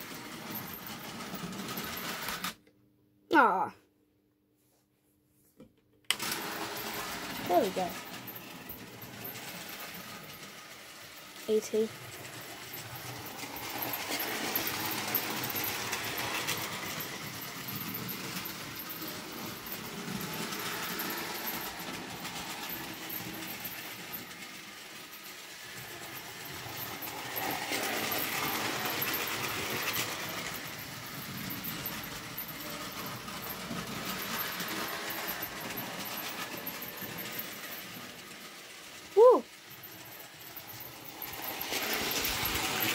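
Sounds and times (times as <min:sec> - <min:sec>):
model train rattling over track: 0:06.1 - 0:42.9.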